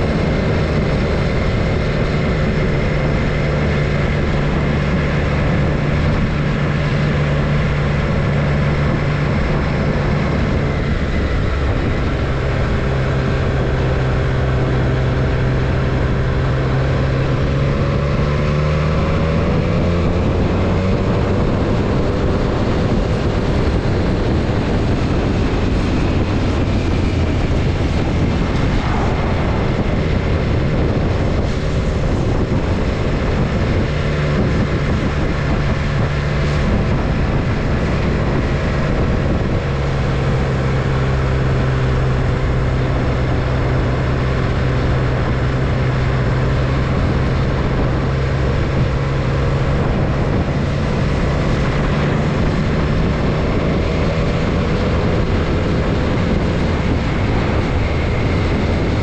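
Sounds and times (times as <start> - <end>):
motorcycle engine drone: 0.0 - 59.0
rushing wind and road noise: 0.0 - 59.0.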